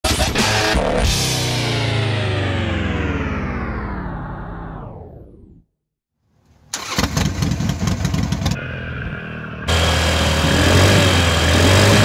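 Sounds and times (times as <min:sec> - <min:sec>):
motorcycle engine: 0:06.7 - 0:12.0.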